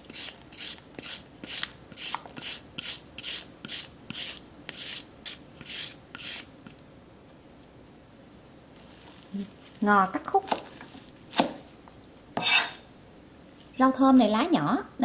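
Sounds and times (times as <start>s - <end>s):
carrot scraping on grater: 12.4s - 12.8s.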